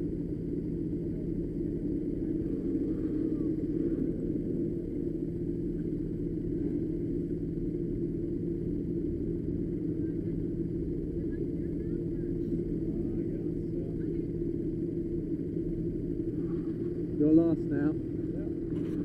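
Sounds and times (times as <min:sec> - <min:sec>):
go-kart engine drone: 0:00.0 - 0:19.0
road rumble: 0:00.0 - 0:19.0.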